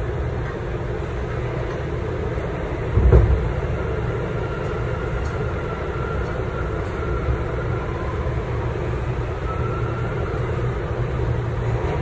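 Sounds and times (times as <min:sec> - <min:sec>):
subway wheels rumbling: 0:00.0 - 0:12.0
heavy clunk: 0:02.9 - 0:03.7.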